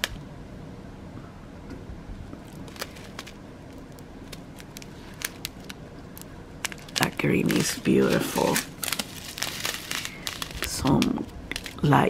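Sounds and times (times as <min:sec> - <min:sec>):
low background hum: 0:00.0 - 0:12.0
plastic bag crinkling: 0:02.4 - 0:12.0.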